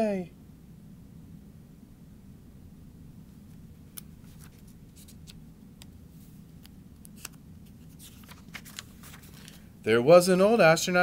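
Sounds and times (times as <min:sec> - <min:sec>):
low room hum: 0:00.0 - 0:11.0
book pages turning: 0:03.9 - 0:05.4, 0:07.1 - 0:09.7.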